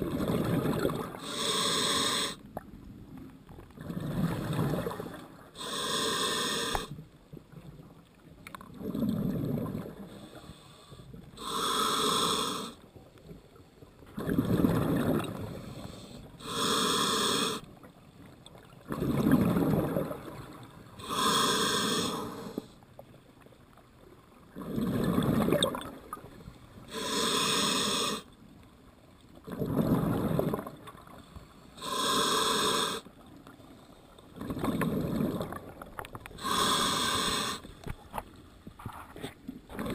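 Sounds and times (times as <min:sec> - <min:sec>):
gurgle of exhaled bubbles: 0:00.0 - 0:01.2, 0:03.8 - 0:05.2, 0:08.7 - 0:10.0, 0:14.2 - 0:15.5, 0:18.9 - 0:20.6, 0:24.6 - 0:26.2, 0:29.4 - 0:30.9, 0:34.4 - 0:35.9
regulator inhale hiss: 0:01.2 - 0:02.4, 0:05.6 - 0:07.0, 0:10.1 - 0:12.8, 0:15.5 - 0:17.7, 0:21.0 - 0:22.8, 0:26.8 - 0:28.3, 0:31.2 - 0:33.1, 0:36.3 - 0:38.0.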